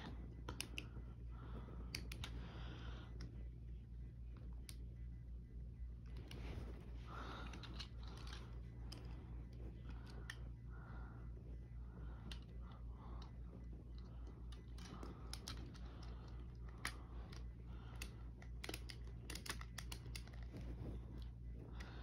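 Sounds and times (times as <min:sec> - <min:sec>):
light clicks and taps: 0:00.0 - 0:03.4, 0:12.0 - 0:22.0
steady low hum: 0:00.0 - 0:22.0.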